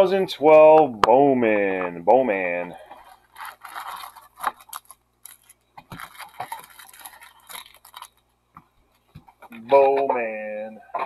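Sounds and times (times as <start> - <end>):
foil wrappers crinkling: 2.7 - 9.5.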